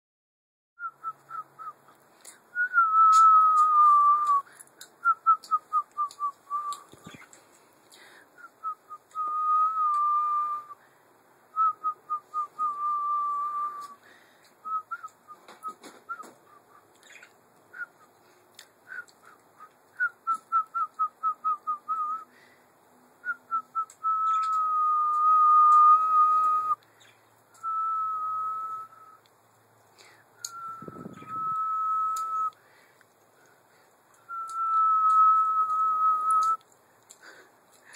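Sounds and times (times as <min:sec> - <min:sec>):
person whistling: 0:02.5 - 0:04.4, 0:05.0 - 0:06.9, 0:08.4 - 0:10.8, 0:11.6 - 0:14.0, 0:14.6 - 0:16.6, 0:18.9 - 0:22.3, 0:23.2 - 0:26.8, 0:27.6 - 0:29.2, 0:30.4 - 0:32.6, 0:34.3 - 0:36.6.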